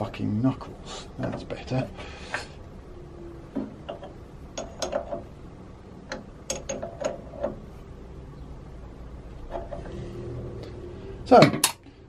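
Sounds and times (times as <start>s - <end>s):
metal spanner clicks: 3.8s - 5.3s, 6.0s - 7.6s.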